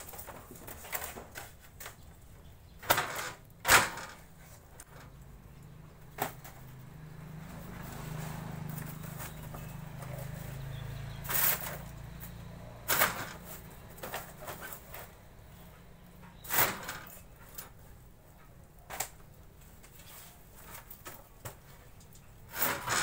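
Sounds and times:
veneer cutter cracking wood: 2.8s - 5.3s, 11.2s - 15.1s.

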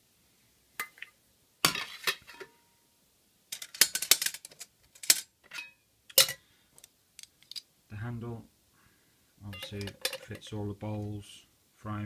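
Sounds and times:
metal cookware clinking: 0.8s - 2.6s, 3.6s - 6.4s, 9.5s - 10.5s.

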